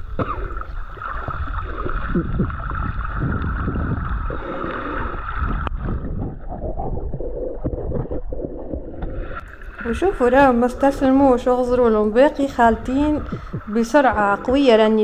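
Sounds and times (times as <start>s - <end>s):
water gurgling underwater: 0.0s - 15.0s
steady high hum: 7.4s - 15.0s.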